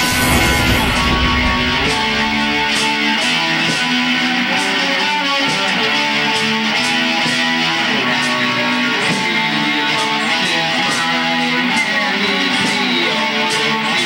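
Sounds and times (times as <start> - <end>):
heavy metal electric guitar riff: 0.0 - 3.3.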